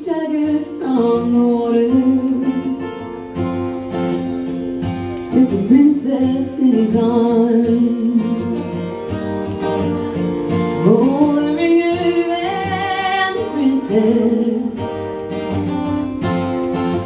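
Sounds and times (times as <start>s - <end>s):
woman singing a slow ballad: 0.0s - 3.2s, 5.3s - 9.0s, 10.6s - 15.0s
strummed acoustic guitar: 0.0s - 17.0s.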